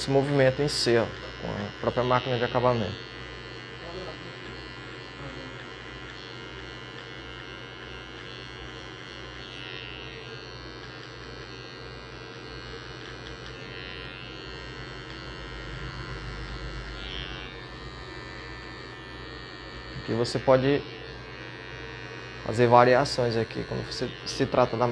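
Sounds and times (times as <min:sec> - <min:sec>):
hair trimmer buzzing: 0:00.0 - 0:24.9.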